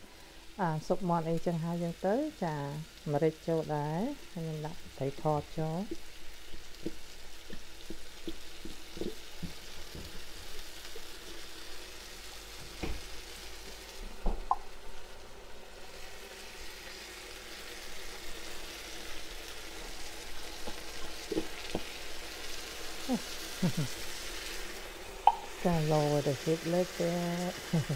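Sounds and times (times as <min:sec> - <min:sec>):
onions sizzling in oil: 0:00.0 - 0:27.9
spatula stirring in pan: 0:05.8 - 0:11.5.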